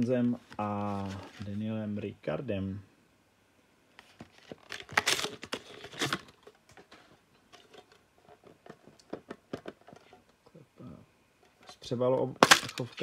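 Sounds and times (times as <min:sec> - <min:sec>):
packaging rustling and tearing: 0:00.5 - 0:01.4, 0:04.0 - 0:07.0.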